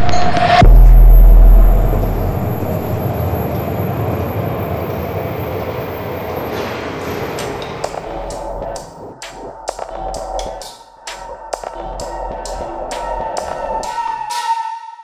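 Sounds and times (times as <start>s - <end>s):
deep low boom: 0.0s - 4.2s
metro train rumbling: 0.0s - 9.0s.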